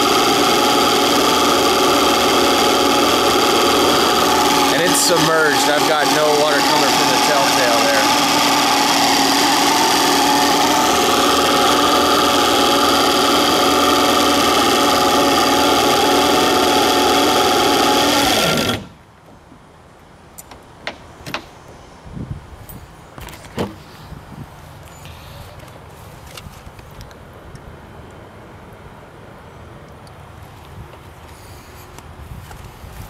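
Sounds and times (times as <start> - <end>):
outboard motor running: 0.0 - 19.0.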